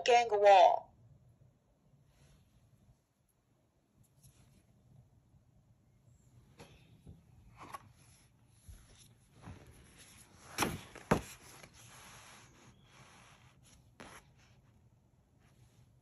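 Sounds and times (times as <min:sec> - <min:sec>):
book cover rustling: 0:07.5 - 0:14.6.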